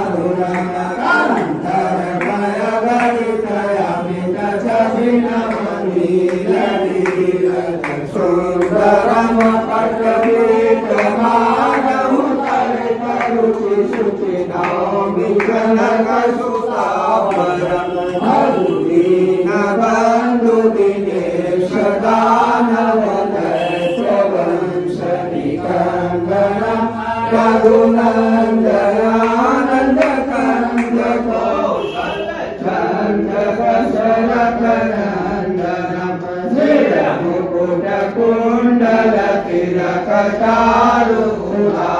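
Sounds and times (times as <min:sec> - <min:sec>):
group singing a hymn: 0:00.0 - 0:41.9
hands clapping: 0:00.4 - 0:03.3, 0:05.0 - 0:18.4, 0:29.1 - 0:31.2.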